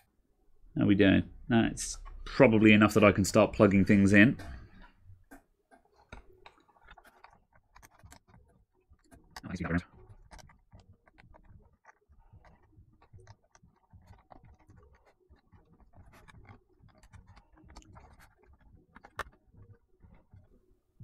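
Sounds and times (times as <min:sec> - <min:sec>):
small clicks and handling noises: 0:04.4 - 0:21.0.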